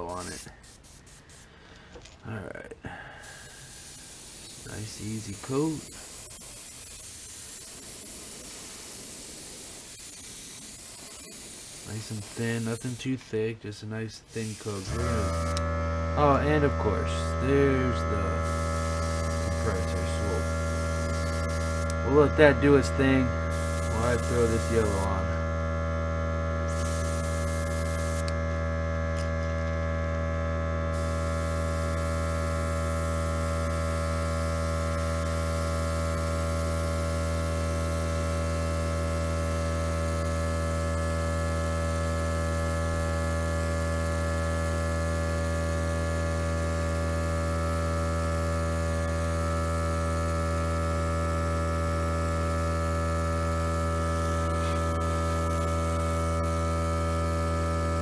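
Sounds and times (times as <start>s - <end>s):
airbrush hissing: 0.0s - 1.7s, 3.1s - 13.2s, 14.3s - 15.6s, 18.2s - 22.0s, 23.4s - 25.2s, 26.6s - 28.4s, 30.9s - 45.4s, 47.6s - 58.0s
air compressor humming: 0.0s - 13.3s, 14.2s - 58.0s.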